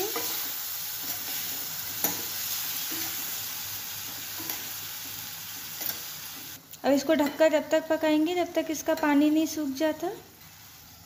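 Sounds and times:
gravy sizzling in a pan: 0:00.0 - 0:06.7, 0:07.7 - 0:11.0.

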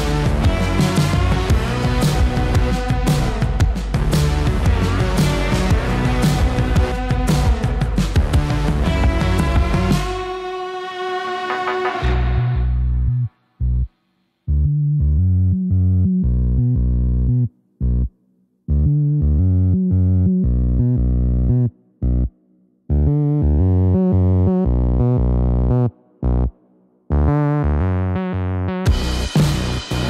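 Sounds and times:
background music with pulsing bass: 0:00.0 - 0:13.9, 0:14.5 - 0:18.1, 0:18.7 - 0:22.3, 0:22.9 - 0:30.0.

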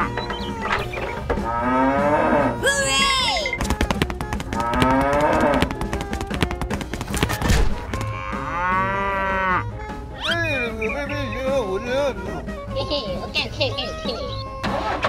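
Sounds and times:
cow mooing: 0:01.4 - 0:02.6, 0:04.6 - 0:05.7, 0:07.9 - 0:10.0
rapid sharp clicks: 0:03.6 - 0:07.6.

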